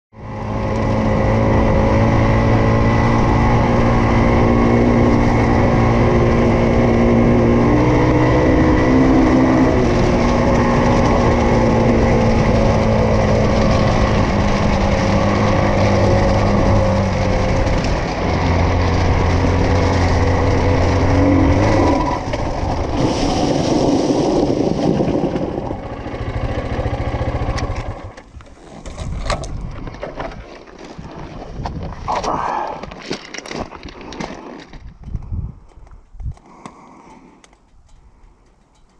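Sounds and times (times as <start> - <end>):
motorcycle engine running: 0.2 - 28.4
tyre skidding on gravel: 2.0 - 35.0.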